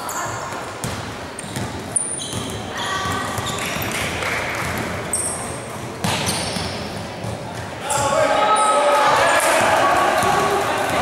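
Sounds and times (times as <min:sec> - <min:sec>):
sneakers squeaking: 0:00.0 - 0:09.6
basketball bouncing: 0:00.8 - 0:05.0, 0:05.7 - 0:07.8, 0:10.2 - 0:11.0.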